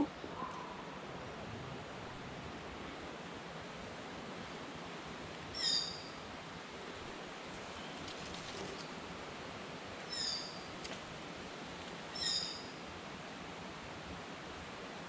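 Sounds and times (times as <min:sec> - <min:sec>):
outdoor hiss: 0:00.0 - 0:15.0
bird calling clear notes: 0:12.1 - 0:12.8.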